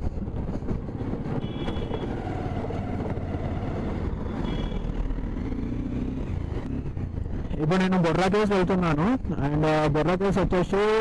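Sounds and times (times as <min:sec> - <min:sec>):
motorcycle engine and road rumble: 0:00.0 - 0:11.0
high horn toots: 0:01.4 - 0:02.2.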